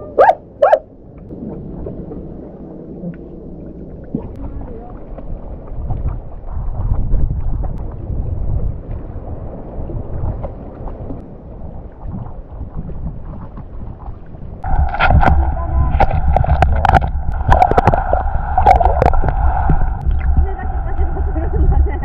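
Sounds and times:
muffled wind buffeting: 0.2 - 22.0
faint water splashes: 1.0 - 22.0.

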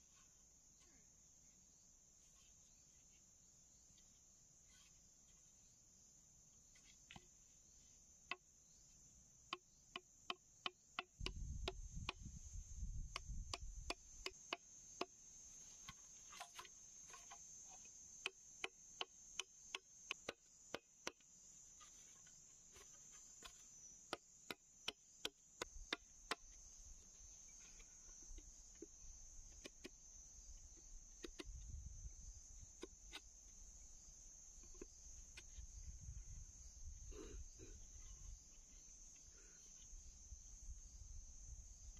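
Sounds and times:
insects droning: 0.0 - 41.9
machete chopping bamboo: 18.2 - 21.2.

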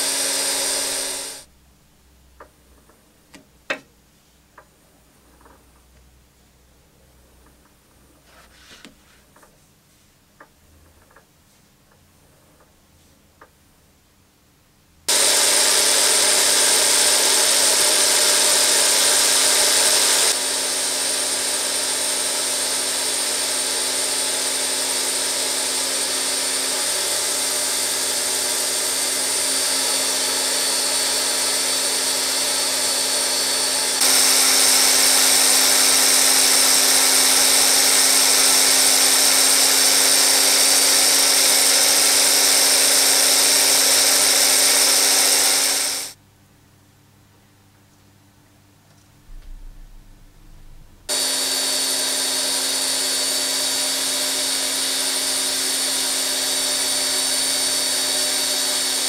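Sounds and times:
grinder high whine: 0.0 - 1.5, 15.1 - 46.2, 51.1 - 59.0.

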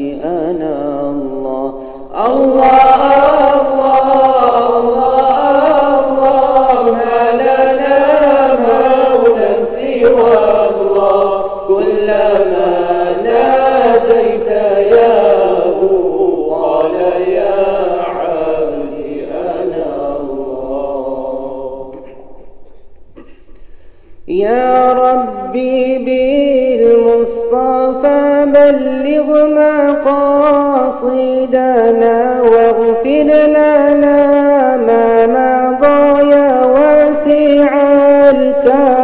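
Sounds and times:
voices chanting: 2.2 - 22.4.

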